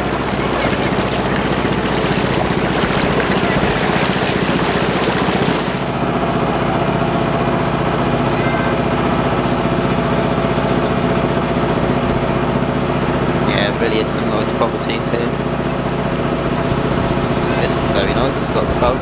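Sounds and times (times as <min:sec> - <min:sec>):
rush of wind and water: 0:00.0 - 0:06.0
boat engine running: 0:00.0 - 0:19.0.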